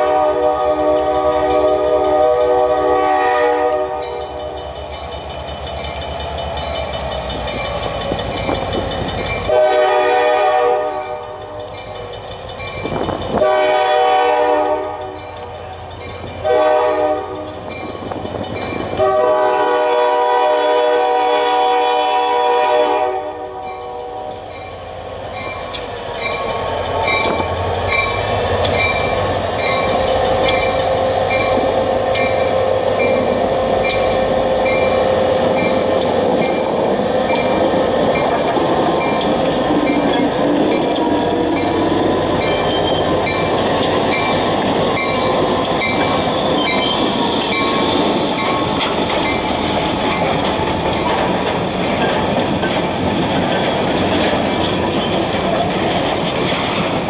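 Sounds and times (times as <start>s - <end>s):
locomotive chime air horn: 0.0s - 4.6s, 9.4s - 11.7s, 13.3s - 15.4s, 16.4s - 17.6s, 18.9s - 24.6s
wheels clicking over rails: 0.5s - 16.5s, 17.1s - 19.1s, 24.3s - 57.0s
crossing signal bell dinging: 3.8s - 9.6s, 11.0s - 13.4s, 17.2s - 19.1s, 23.6s - 50.4s.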